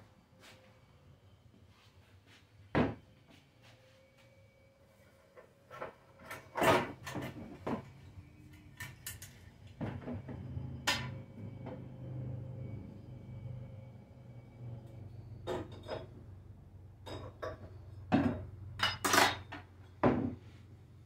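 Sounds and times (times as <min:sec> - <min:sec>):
clunks and rattles of handling parts: 0:05.7 - 0:08.0, 0:17.0 - 0:20.4.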